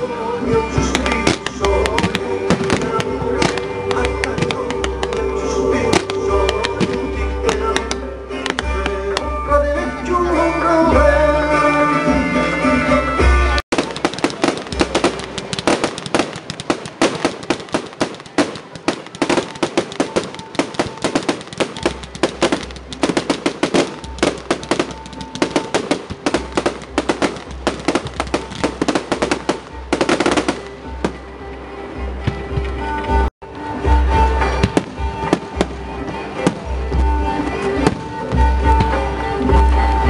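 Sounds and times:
music: 0.0 - 40.0
fireworks bangs and crackles: 0.4 - 9.3, 13.7 - 31.3, 33.9 - 39.1.

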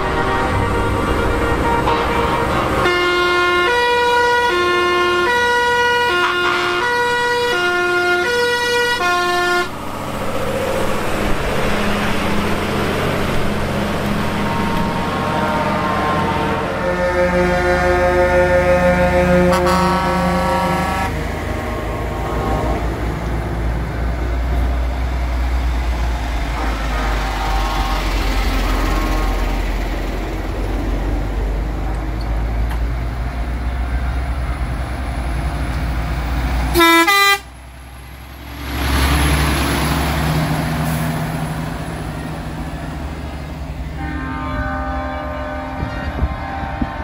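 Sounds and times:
truck air horn: 0.0 - 10.0, 14.0 - 21.2, 26.4 - 29.7, 36.7 - 37.5, 43.8 - 47.0
heavy trucks driving past: 0.0 - 47.0.

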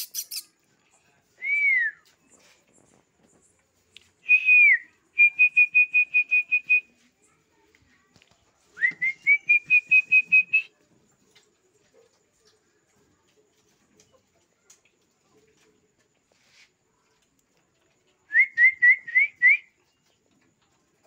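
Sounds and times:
person whistling: 4.3 - 6.8, 18.3 - 19.7.

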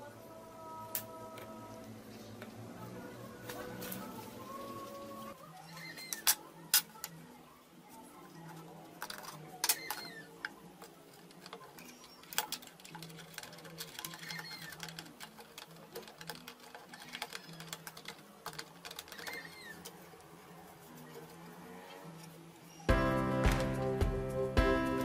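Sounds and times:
quiet background music: 0.0 - 25.0
jigsaw blades clicking and tapping: 9.0 - 20.0.

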